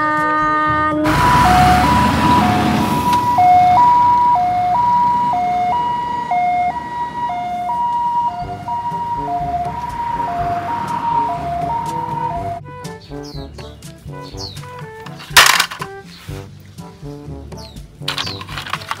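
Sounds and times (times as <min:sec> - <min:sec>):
ambulance two-tone siren: 0:01.0 - 0:12.6
passing traffic rumble: 0:01.0 - 0:12.6.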